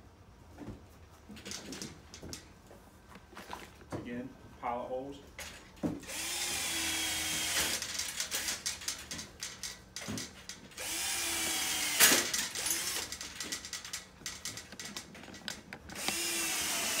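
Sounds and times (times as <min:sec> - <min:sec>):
power drill drilling: 0:06.0 - 0:08.5, 0:10.8 - 0:13.1, 0:16.0 - 0:17.0.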